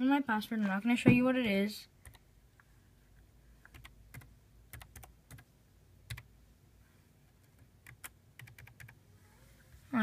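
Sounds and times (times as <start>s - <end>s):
keyboard keys clicking: 3.6s - 5.4s, 7.4s - 9.0s.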